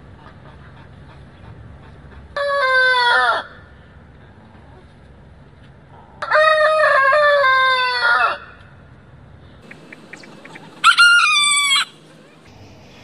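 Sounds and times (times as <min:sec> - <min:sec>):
rooster crowing: 0:06.2 - 0:08.6, 0:10.6 - 0:12.1.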